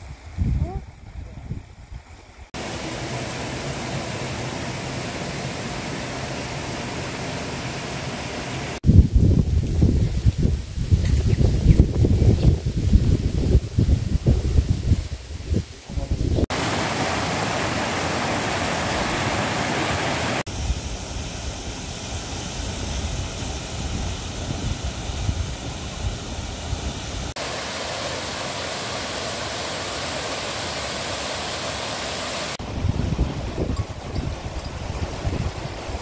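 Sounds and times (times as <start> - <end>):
wind buffeting microphone: 0.0 - 2.4, 8.8 - 16.8, 22.5 - 27.3, 32.6 - 36.0
stream and small waterfall: 0.0 - 36.0.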